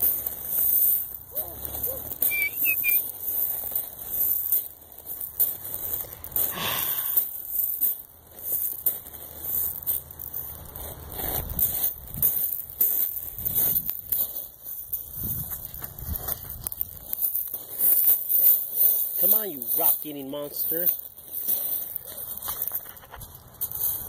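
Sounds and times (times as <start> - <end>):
feet crunching on gravel: 0.0 - 24.0
high whistle-like chirps: 1.3 - 3.1.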